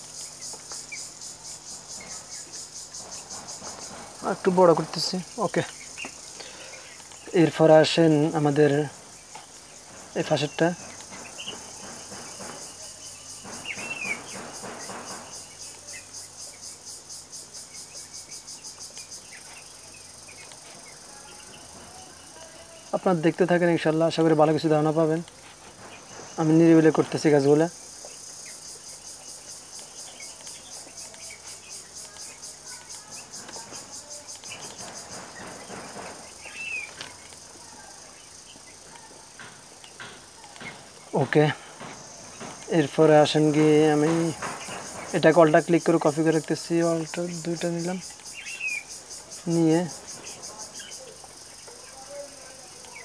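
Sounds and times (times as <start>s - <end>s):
insects chirping: 0.0s - 53.0s
bird chirps: 9.1s - 17.0s, 25.8s - 38.9s, 47.0s - 52.2s.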